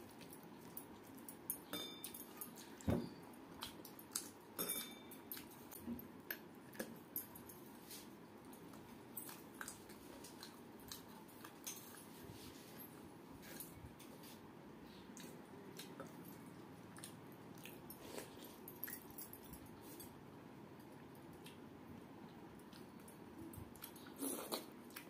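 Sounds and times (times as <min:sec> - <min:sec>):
bangles tapping metal plates: 0:04.6 - 0:05.3.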